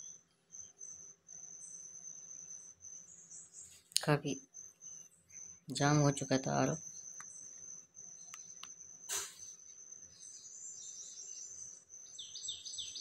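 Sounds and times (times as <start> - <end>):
small bird chirping rapidly: 0.0 - 13.0
short scrape: 9.1 - 9.5.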